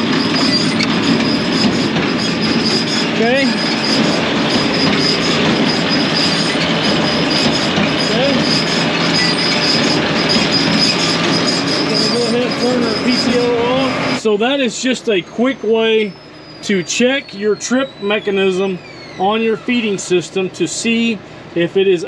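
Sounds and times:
baler machine clattering: 0.0s - 14.2s
thin high whine: 0.0s - 21.0s.

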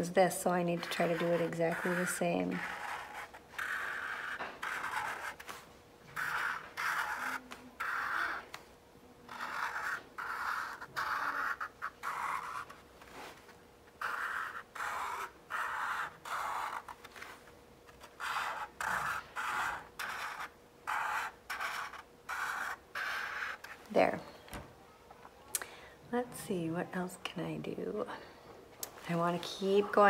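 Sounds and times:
marker scratching on paper plate: 0.2s - 8.6s, 9.3s - 23.8s.

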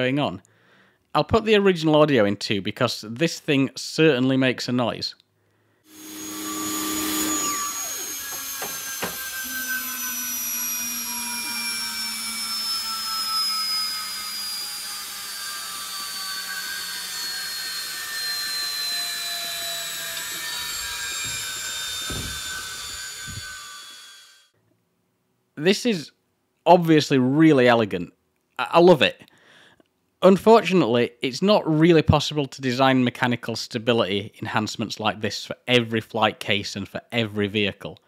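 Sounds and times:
flywheel whining spinning down: 5.9s - 24.5s.

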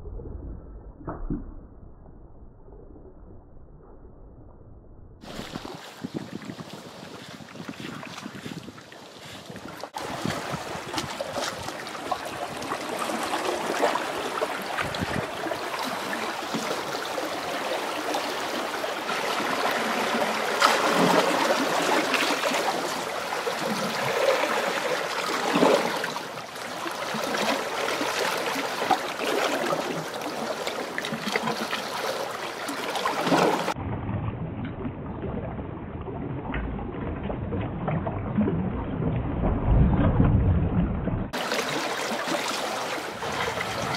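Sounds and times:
seawater washing against rocks: 5.2s - 33.8s, 41.4s - 43.9s
muffled rush with low rumble: 33.8s - 41.4s.

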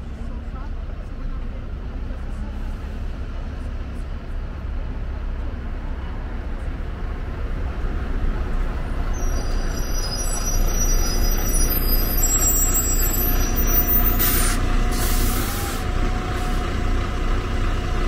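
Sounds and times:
bus passing: 0.0s - 18.0s
road traffic rumbling: 0.0s - 18.0s.

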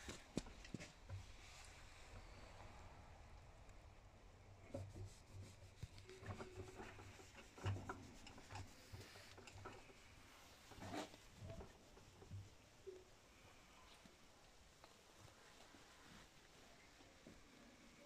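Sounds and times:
faint rubbing: 4.6s - 18.0s.

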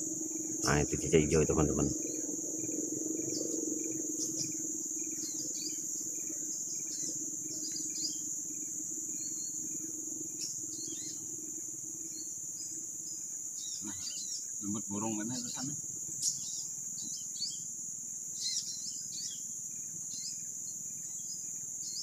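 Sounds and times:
low hum: 0.0s - 11.5s
insects droning: 0.0s - 22.0s
bird chirps and calls: 13.6s - 17.7s, 18.4s - 19.4s.

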